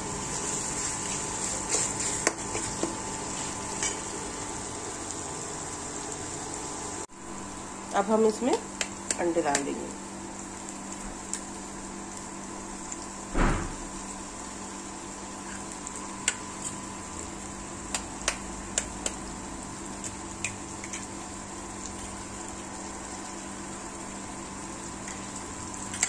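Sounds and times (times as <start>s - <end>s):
frying hiss: 0.0s - 26.0s.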